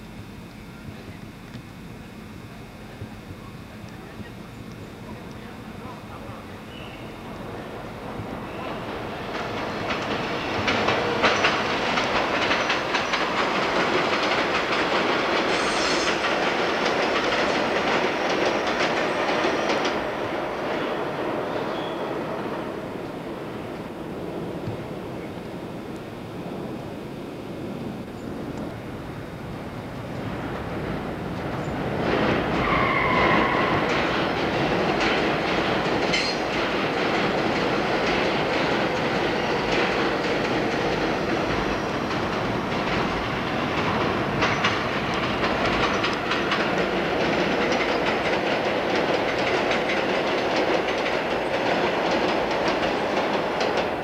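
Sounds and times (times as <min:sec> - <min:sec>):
train rumble: 0:00.0 - 0:54.0
wheels clattering over rail joints: 0:08.6 - 0:15.5.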